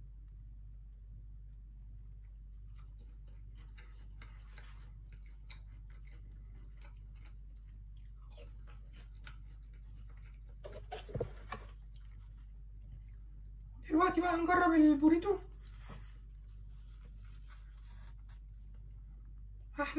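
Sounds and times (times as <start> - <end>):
person chewing crunchy food: 0.9 - 13.6.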